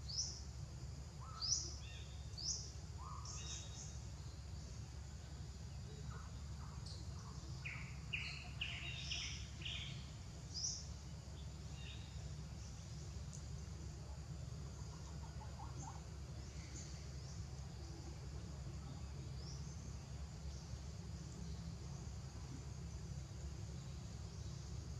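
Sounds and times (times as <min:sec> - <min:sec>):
steady low rumble: 0:00.0 - 0:24.9
bird chirps: 0:06.0 - 0:13.5.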